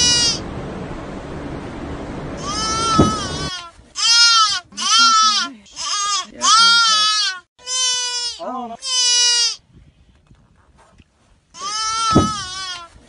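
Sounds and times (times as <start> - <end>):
high-pitched animal cries: 0.0 - 0.4, 2.4 - 9.6, 11.6 - 13.0.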